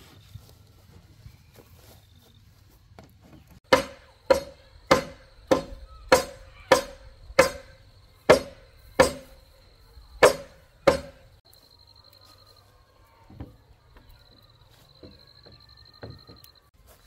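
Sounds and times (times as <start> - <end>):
hand tool striking bamboo: 3.6 - 9.4, 10.2 - 11.4.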